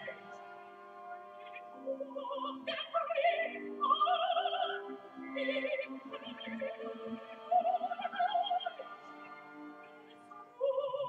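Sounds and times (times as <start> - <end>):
sustained accompaniment: 0.0 - 11.0
operatic voice singing: 1.4 - 9.5.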